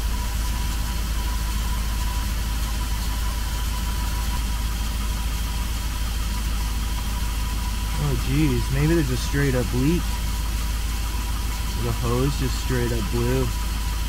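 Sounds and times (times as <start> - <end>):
van engine idling: 0.0 - 14.0
faint high whine: 7.9 - 10.2, 11.1 - 13.7.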